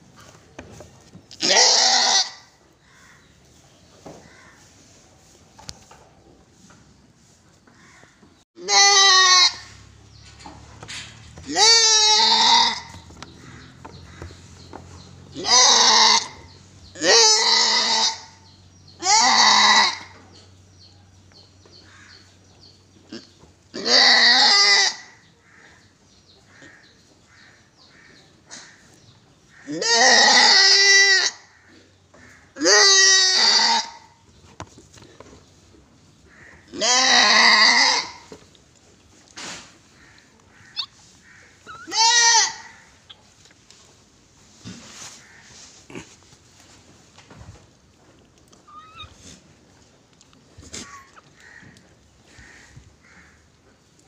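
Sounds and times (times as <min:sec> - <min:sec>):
goat bleating loudly: 0:01.3 - 0:02.6, 0:08.6 - 0:09.8, 0:11.4 - 0:13.5, 0:15.3 - 0:20.2, 0:23.1 - 0:25.2, 0:29.7 - 0:31.5, 0:32.6 - 0:34.1, 0:36.7 - 0:38.3, 0:41.6 - 0:42.9.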